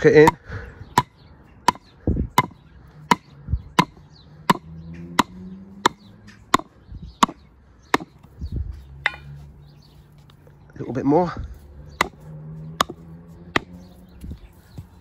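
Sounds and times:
hammer knocking on wooden log: 1.0s - 8.2s, 12.8s - 13.8s.

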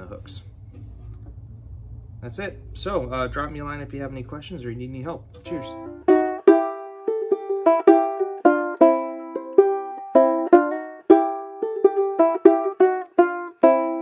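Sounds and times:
banjo strummed: 5.4s - 14.0s.

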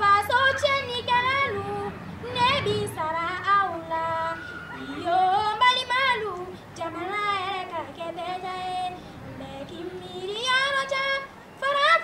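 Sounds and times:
woman singing: 0.0s - 12.0s
singer's breaths: 4.4s - 5.0s, 6.4s - 6.8s, 8.9s - 9.4s.

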